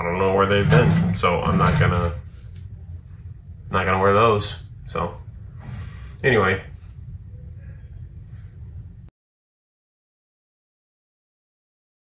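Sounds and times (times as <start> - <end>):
low room rumble: 0.0 - 9.1.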